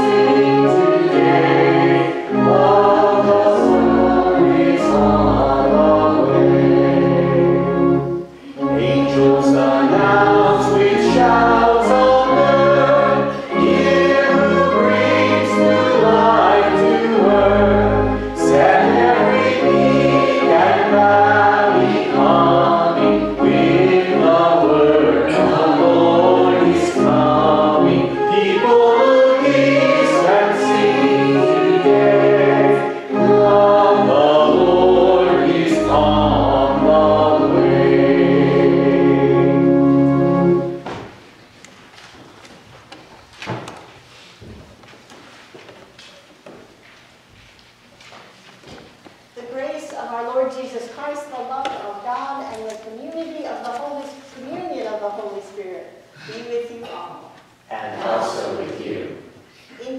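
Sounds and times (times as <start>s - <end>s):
congregation singing a hymn: 0.0s - 41.1s, 57.6s - 59.5s
instrumental accompaniment: 0.0s - 41.2s.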